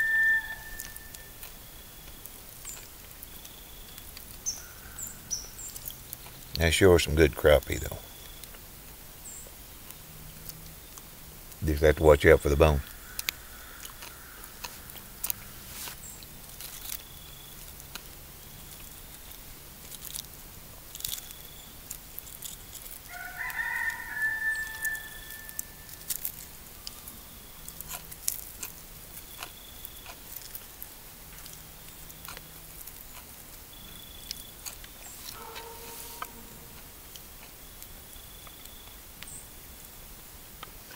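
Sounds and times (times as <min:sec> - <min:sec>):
rooster crowing: 0:00.0 - 0:01.3, 0:23.0 - 0:25.9, 0:35.4 - 0:36.8.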